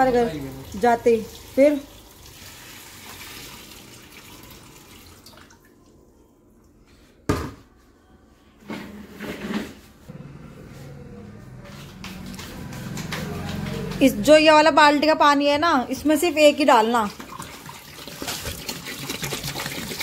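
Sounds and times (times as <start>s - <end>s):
water pouring into aquarium: 0.4s - 6.0s, 17.1s - 20.0s.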